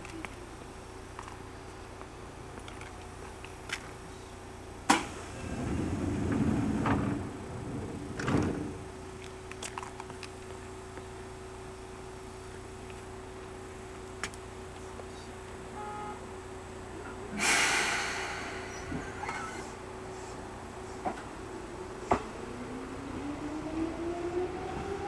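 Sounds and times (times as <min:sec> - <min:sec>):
train door click: 0:04.9 - 0:07.3
sliding doors rumbling: 0:04.9 - 0:09.0, 0:17.4 - 0:19.8
doors shutting thud: 0:08.1 - 0:08.8.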